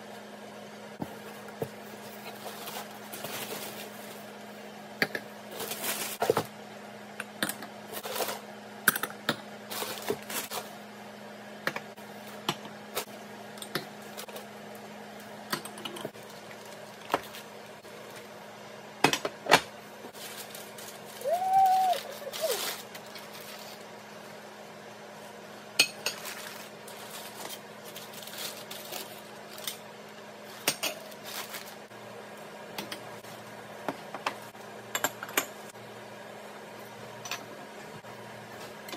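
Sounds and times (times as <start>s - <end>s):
packing paper rustling: 2.0s - 4.4s, 5.5s - 6.4s, 9.7s - 10.8s, 20.1s - 24.0s, 26.2s - 29.7s, 31.1s - 31.9s.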